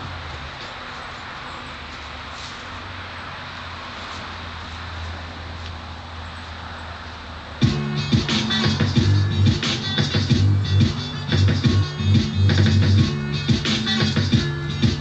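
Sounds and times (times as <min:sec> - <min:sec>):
music track with record scratching: 0:07.6 - 0:15.0.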